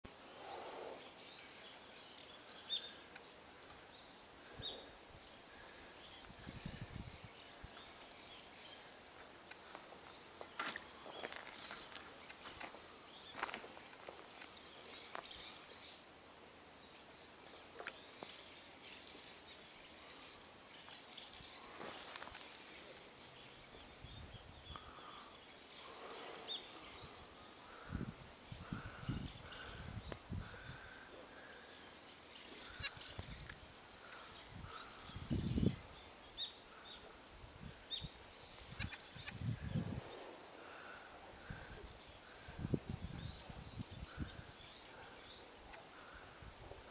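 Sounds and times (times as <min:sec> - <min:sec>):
distant bird chirps: 0:00.1 - 0:06.6
small birds chirping: 0:00.1 - 0:46.9.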